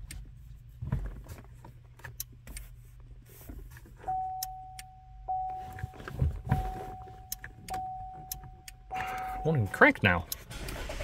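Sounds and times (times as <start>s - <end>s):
low steady hum: 0.0s - 10.9s
car warning chime: 4.0s - 10.4s.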